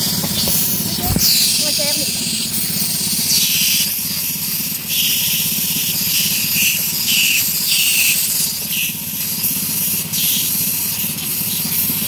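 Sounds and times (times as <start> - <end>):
steady low hum: 0.0 - 4.8
air blow gun hissing blasts: 0.0 - 12.0.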